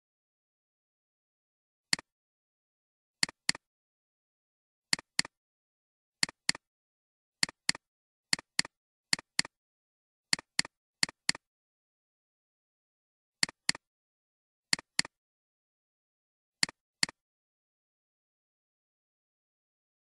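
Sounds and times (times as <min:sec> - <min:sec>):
computer mouse double-clicking: 0:03.2 - 0:03.6, 0:04.9 - 0:05.4, 0:06.2 - 0:06.7, 0:07.4 - 0:09.6, 0:10.3 - 0:11.5, 0:13.4 - 0:13.8, 0:14.7 - 0:15.2, 0:16.6 - 0:17.2.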